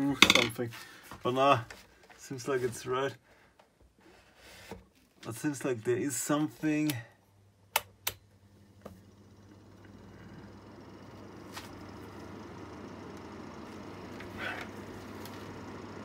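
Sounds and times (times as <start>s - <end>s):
low mains hum: 0.0s - 16.0s
heater knob clicks: 7.7s - 8.2s
fan motor whirring: 7.7s - 16.0s.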